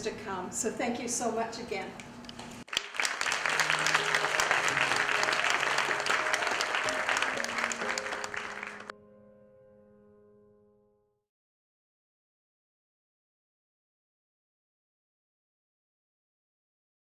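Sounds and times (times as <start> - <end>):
audience applauding: 2.7 - 8.9
music playing: 2.7 - 9.4.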